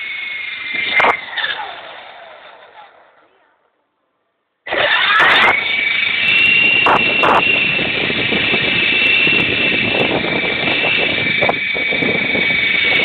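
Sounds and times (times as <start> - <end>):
toy car motor whining: 0.0 - 3.3, 4.7 - 13.0
rattling running noise: 4.7 - 13.0.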